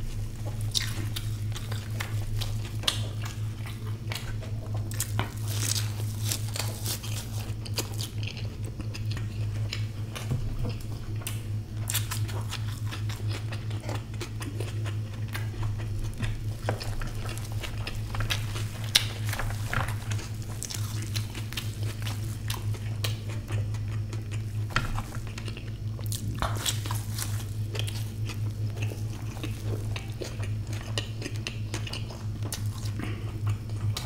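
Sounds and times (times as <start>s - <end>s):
person chewing food: 0.0s - 34.0s
steady low hum: 0.0s - 34.0s.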